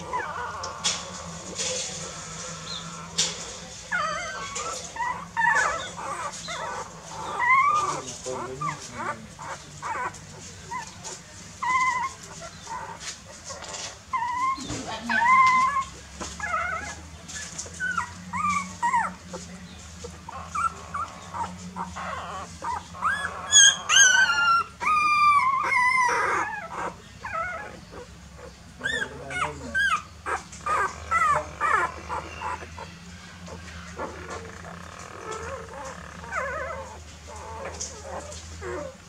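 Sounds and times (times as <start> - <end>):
puppies whimpering and squealing: 0.0 - 39.0.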